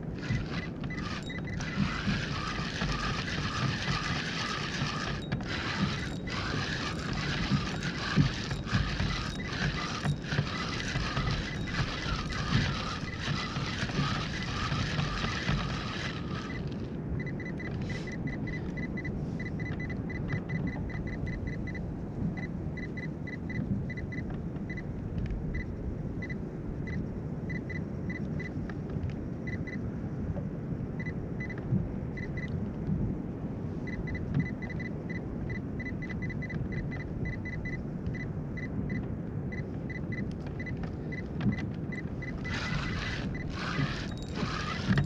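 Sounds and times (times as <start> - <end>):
water lapping around kayak: 0.0 - 21.1, 38.8 - 45.0
wind on microphone: 0.0 - 45.0.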